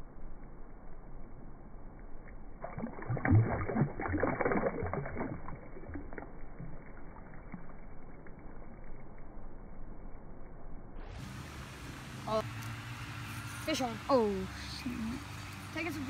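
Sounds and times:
fish splashing in shallow water: 0:02.6 - 0:09.3.

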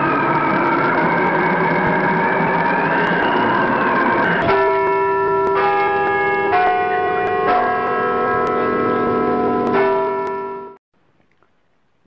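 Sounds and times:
wavering noisy sweep: 0:00.0 - 0:10.8
chiming bell tones: 0:03.8 - 0:10.8.

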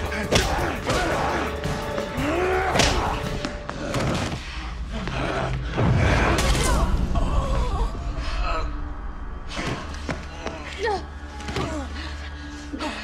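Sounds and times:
men grunting: 0:00.0 - 0:04.3
dramatic music score: 0:00.0 - 0:13.0.

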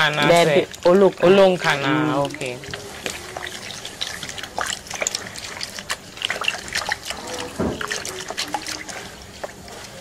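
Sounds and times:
liquid splashing and trickling: 0:00.0 - 0:10.0
wet squelching of cloth bag: 0:00.0 - 0:10.0.

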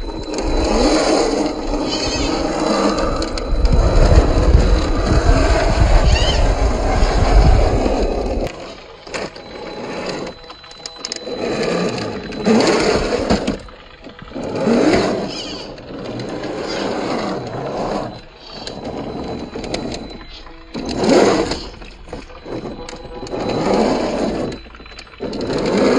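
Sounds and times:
wind rumble on microphone: 0:00.0 - 0:08.5
electric motor whining: 0:00.0 - 0:25.9
tyres clicking on stone: 0:08.4 - 0:25.9.

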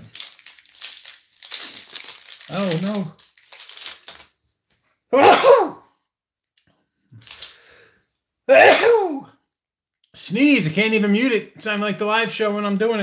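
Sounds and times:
man sneezing loudly: 0:05.1 - 0:05.9, 0:08.5 - 0:09.3.

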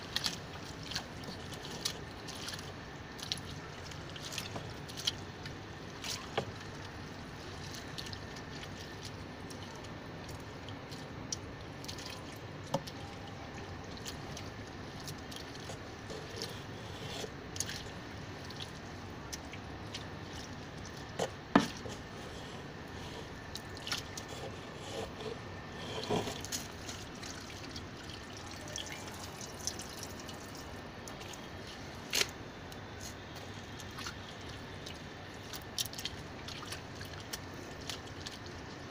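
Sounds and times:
slurry dripping and popping: 0:00.1 - 0:24.3.

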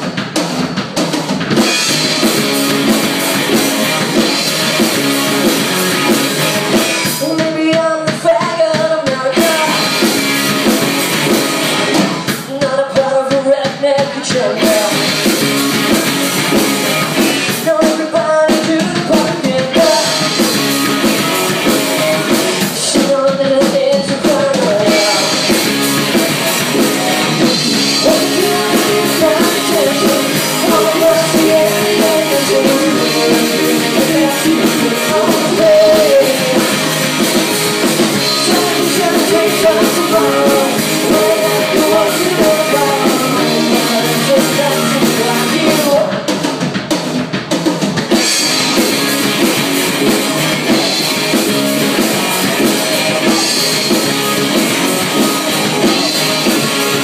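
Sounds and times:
rock band playing: 0:00.0 - 0:57.0
person singing: 0:05.4 - 0:10.4, 0:11.9 - 0:15.6, 0:16.8 - 0:46.4.

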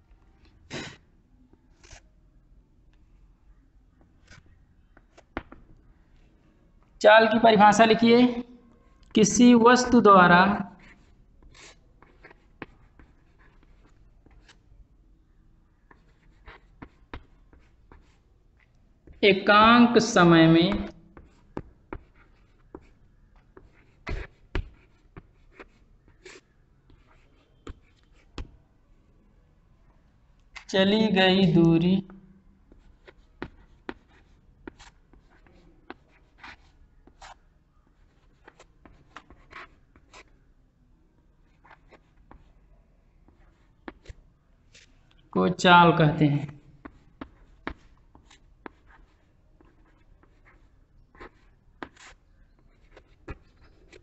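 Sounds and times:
chalk scratching on chalkboard: 0:01.7 - 0:02.0.

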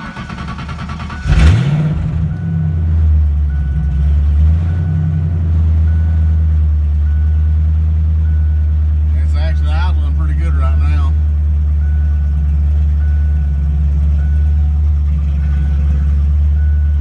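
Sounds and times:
car engine starting and idling: 0:00.0 - 0:17.0
man talking: 0:09.1 - 0:11.2
warning chime beeping: 0:16.5 - 0:17.0.

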